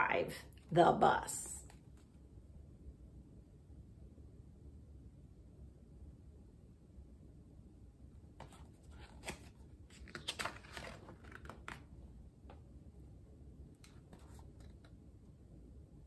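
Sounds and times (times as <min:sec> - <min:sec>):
book page turning: 0:08.4 - 0:12.0, 0:13.8 - 0:15.0.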